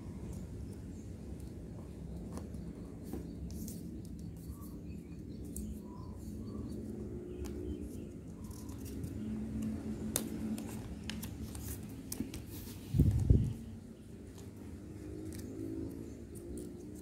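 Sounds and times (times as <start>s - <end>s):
low background hum: 0.0s - 17.0s
paper rustling and crackling: 7.9s - 13.5s.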